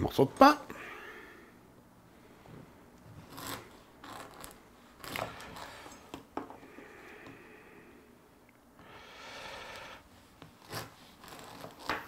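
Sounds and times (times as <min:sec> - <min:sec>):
knife sawing through crusty bread: 0:03.2 - 0:05.9, 0:10.5 - 0:12.0.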